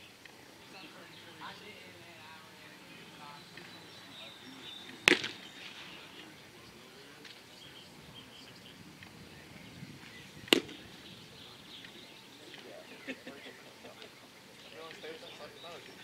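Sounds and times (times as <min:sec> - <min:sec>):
baseball smacking into mitt: 0:05.0 - 0:05.4, 0:10.4 - 0:10.8.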